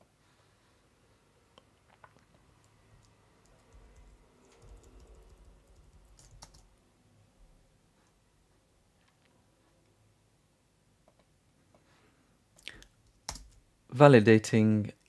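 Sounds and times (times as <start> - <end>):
keyboard and mouse clicks: 1.9 - 6.7, 12.6 - 13.6.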